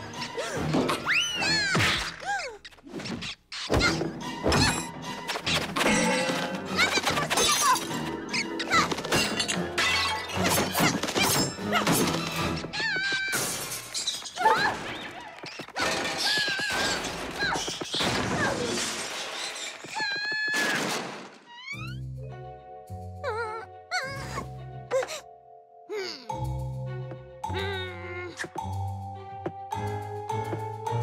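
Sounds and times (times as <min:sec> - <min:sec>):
cartoon music: 0:23.1 - 0:31.0.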